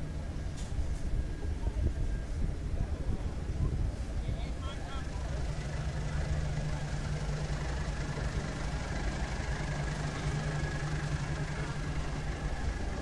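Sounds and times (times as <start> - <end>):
tractor engine idling: 0.0 - 13.0.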